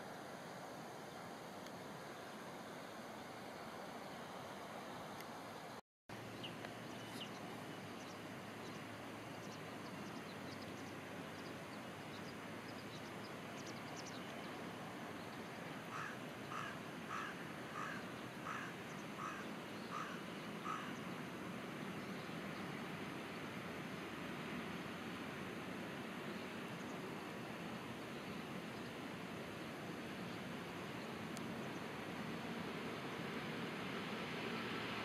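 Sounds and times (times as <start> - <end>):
outdoor background noise: 0.0 - 35.0
bird calling: 15.9 - 21.1.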